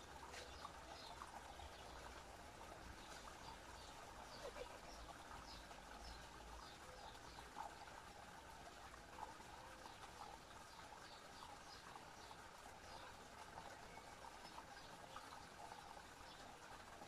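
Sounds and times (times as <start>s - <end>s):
fountain water trickling: 0.0s - 17.0s.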